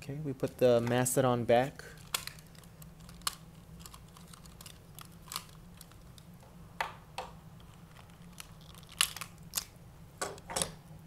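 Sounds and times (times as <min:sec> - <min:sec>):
plastic toy parts clicking: 0:02.0 - 0:06.2.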